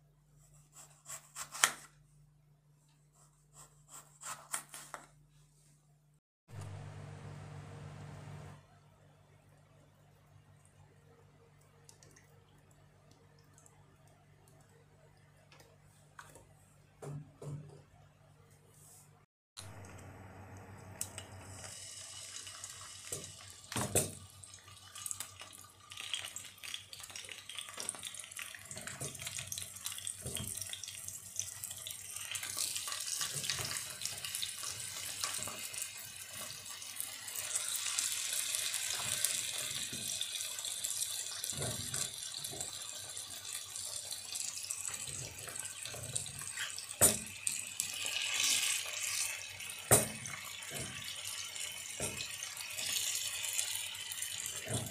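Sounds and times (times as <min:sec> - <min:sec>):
hot oil sizzling in a skillet: 0:21.0 - 0:54.9.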